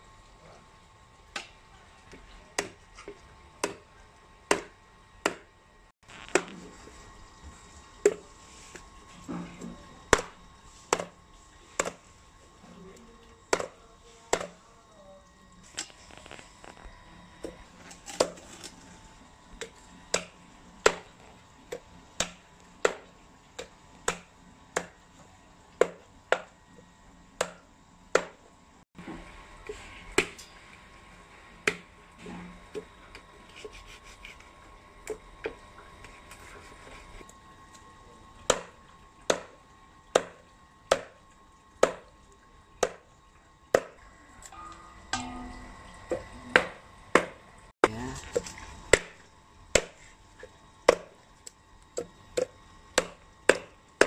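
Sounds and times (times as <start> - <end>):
knife chopping on wooden block: 4.5 - 5.5, 10.1 - 11.2, 39.3 - 39.5, 42.8 - 43.0, 49.8 - 50.0, 52.4 - 53.7.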